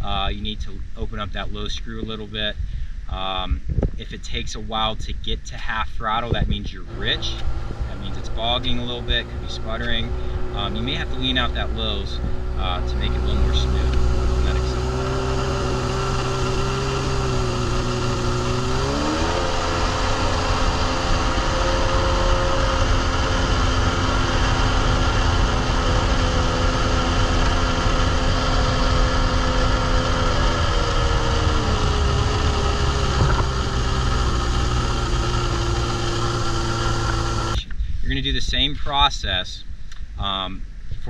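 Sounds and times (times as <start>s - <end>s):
jet ski engine running: 6.0s - 37.7s.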